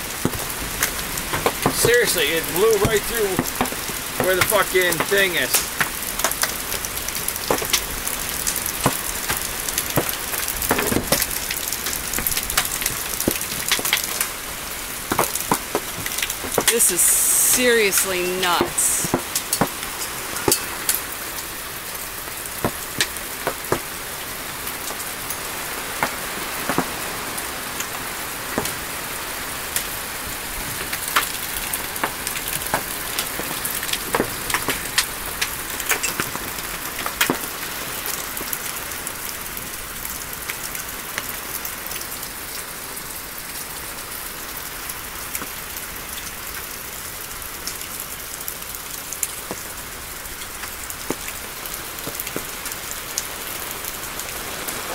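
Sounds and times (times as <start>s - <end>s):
hailstones striking: 0.0s - 41.4s
heavy rain hissing: 0.0s - 54.9s.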